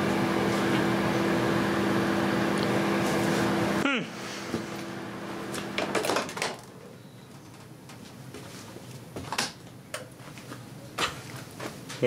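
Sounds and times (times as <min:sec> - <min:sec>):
microwave oven hum: 0:00.0 - 0:07.4
fan hum: 0:00.0 - 0:10.6.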